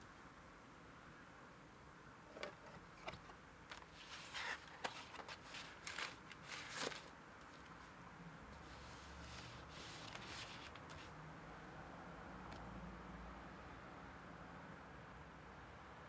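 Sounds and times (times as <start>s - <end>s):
vinyl record rustling and clicks: 2.3s - 7.8s, 9.2s - 11.1s.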